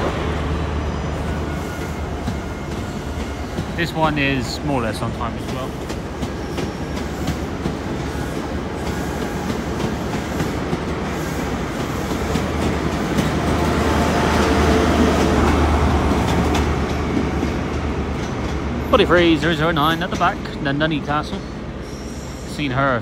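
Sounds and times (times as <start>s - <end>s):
diesel train rumbling: 0.0s - 23.0s
train wheels clicking: 2.2s - 18.7s.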